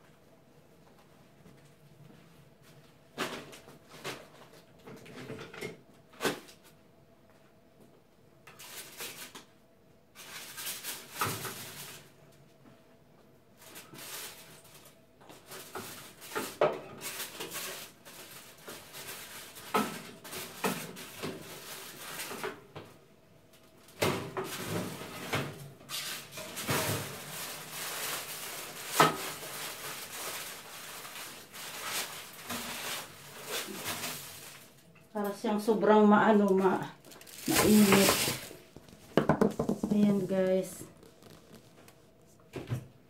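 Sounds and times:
aluminium foil crinkling: 8.5 - 9.5, 10.2 - 12.2, 13.6 - 22.5, 25.9 - 35.4, 36.4 - 39.2, 39.8 - 42.1.

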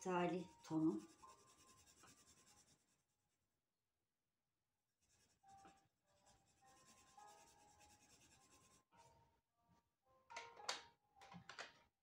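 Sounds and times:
pencil shading on paper: 0.0 - 3.4, 5.0 - 9.1.

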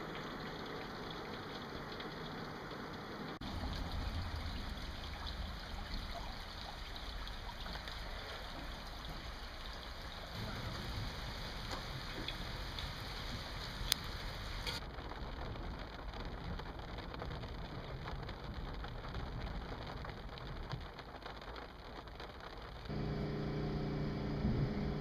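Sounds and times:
motor hum: 22.9 - 25.0.

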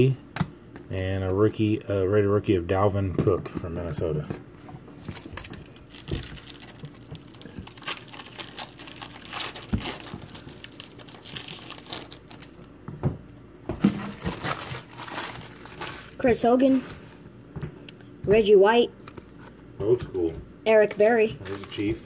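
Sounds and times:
wrapper crinkling and rustling: 5.0 - 12.7, 13.9 - 17.2, 20.8 - 22.0.

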